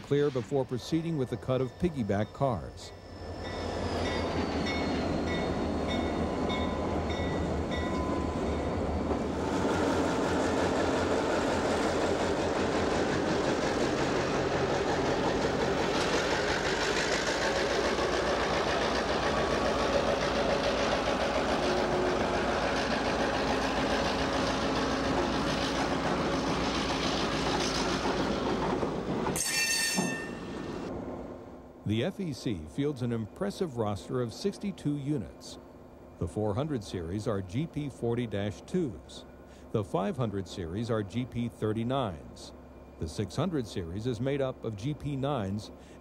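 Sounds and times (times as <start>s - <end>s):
train wheels rolling on rails: 0.0s - 31.3s
locomotive engines rumbling: 0.0s - 46.0s.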